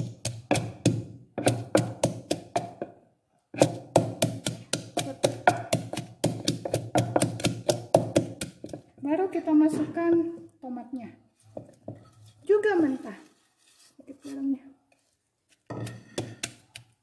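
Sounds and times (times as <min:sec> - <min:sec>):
wooden pestle pounding in mortar: 0:00.0 - 0:10.4, 0:15.7 - 0:17.0.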